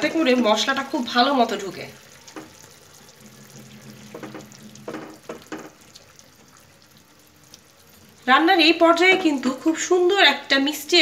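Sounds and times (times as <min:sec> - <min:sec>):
soft frying sizzle: 0:00.0 - 0:11.0.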